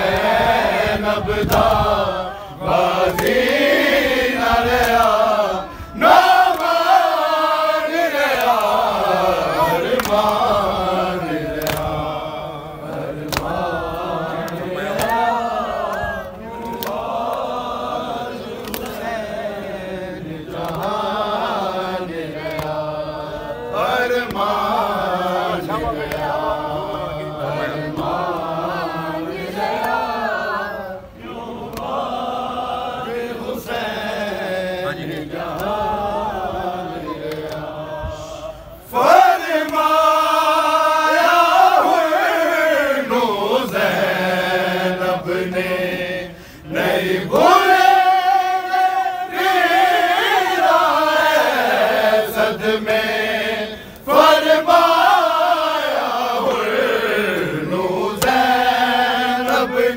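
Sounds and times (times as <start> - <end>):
men chanting a lament: 0.0 - 59.9
hands slapping chests: 3.1 - 3.6, 9.8 - 10.5, 11.5 - 12.1, 12.9 - 13.7, 14.4 - 15.2, 15.9 - 17.4, 18.6 - 19.0, 20.6 - 21.0, 22.4 - 22.8, 31.6 - 32.0, 37.3 - 37.7, 58.2 - 58.5.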